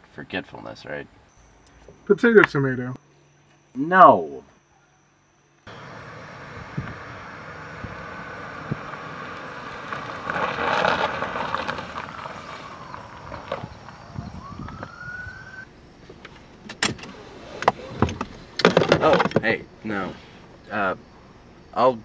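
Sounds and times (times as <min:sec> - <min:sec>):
distant siren wailing: 0:05.7 - 0:15.7
car driving onto gravel: 0:05.7 - 0:21.4.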